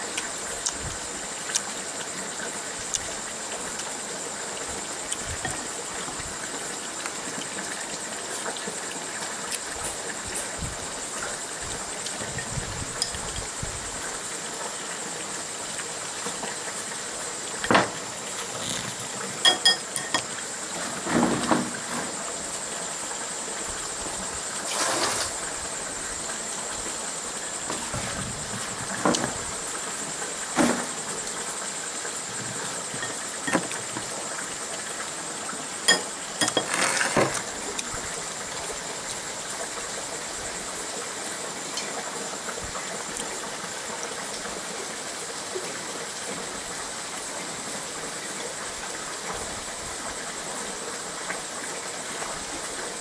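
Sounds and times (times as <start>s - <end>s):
steady background hiss: 0.0s - 53.0s
utensils clinking against bowl: 18.6s - 20.3s, 32.9s - 33.8s, 35.9s - 37.4s.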